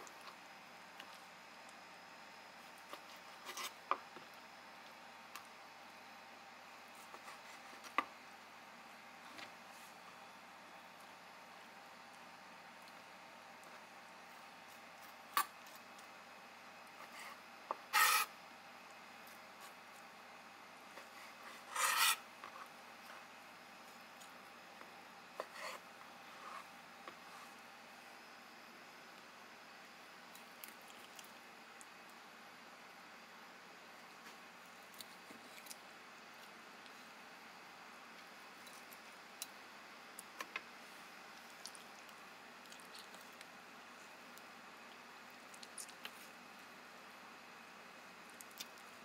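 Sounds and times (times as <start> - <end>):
knife scraping on cutting board: 17.1 - 18.3, 21.5 - 22.2.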